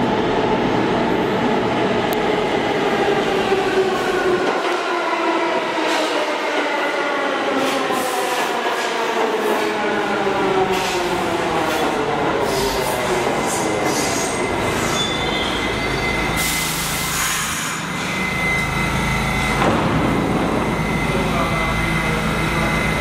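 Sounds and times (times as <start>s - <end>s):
subway train brakes whining: 0.0s - 23.0s
train brake hiss: 16.4s - 18.1s.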